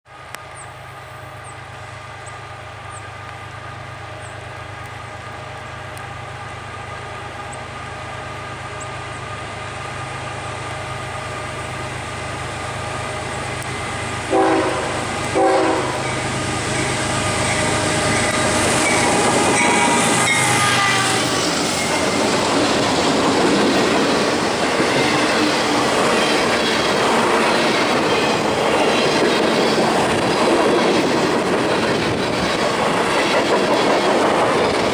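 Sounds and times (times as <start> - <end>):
diesel locomotive engine rumble: 0.1 - 34.9
train wheels clattering on rail: 10.6 - 34.9
train horn blasts: 13.7 - 21.5.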